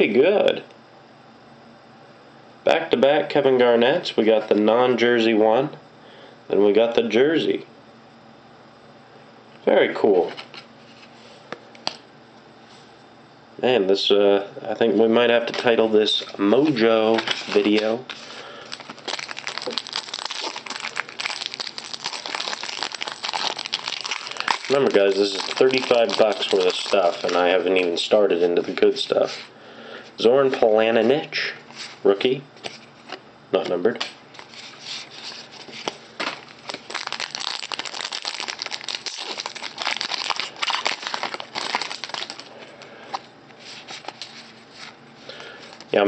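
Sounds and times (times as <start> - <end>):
foil wrapper crinkling: 16.3 - 29.4, 34.3 - 46.0.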